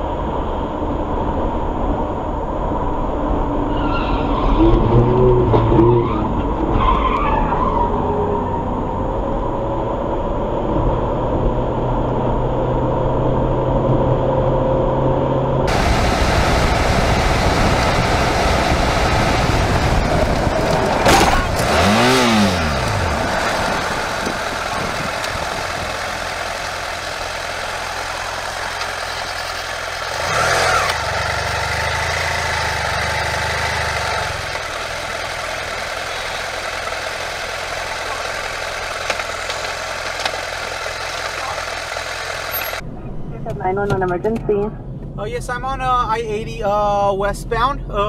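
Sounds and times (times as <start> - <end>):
car engine and road noise: 0.0 - 48.0
rough low rumble: 8.6 - 30.2, 42.8 - 48.0.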